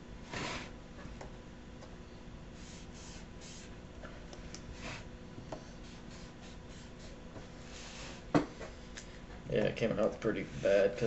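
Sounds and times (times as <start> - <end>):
marker scratching on paper: 2.6 - 3.8, 4.7 - 8.2.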